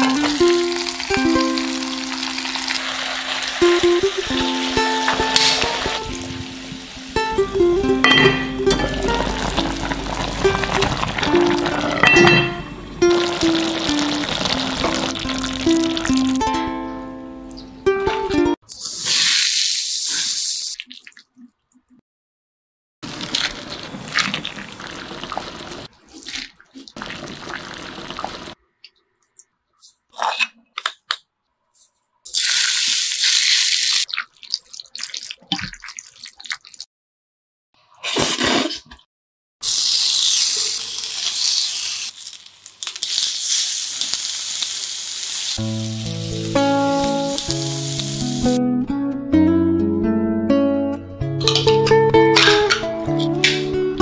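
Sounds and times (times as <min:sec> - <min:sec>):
hot oil sizzling: 0:00.0 - 0:16.4, 0:18.7 - 0:20.8, 0:23.0 - 0:25.9, 0:27.0 - 0:28.6, 0:32.3 - 0:34.1, 0:39.6 - 0:48.6
pork sizzling on a grill pan: 0:00.3 - 0:07.0, 0:39.6 - 0:48.6.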